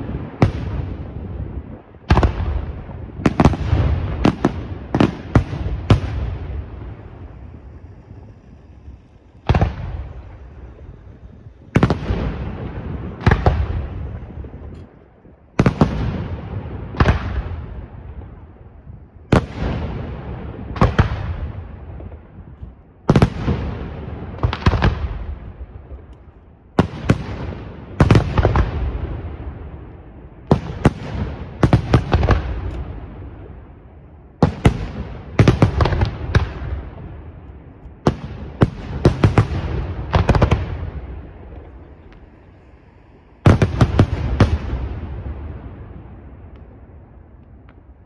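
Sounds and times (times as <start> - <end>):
rolling rumble: 1.6 - 26.7, 34.8 - 48.0.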